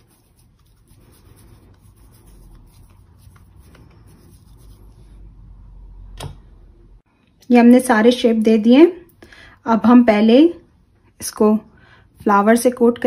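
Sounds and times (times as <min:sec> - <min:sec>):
hands rubbing soft mixture: 0:00.0 - 0:05.5, 0:12.1 - 0:13.0.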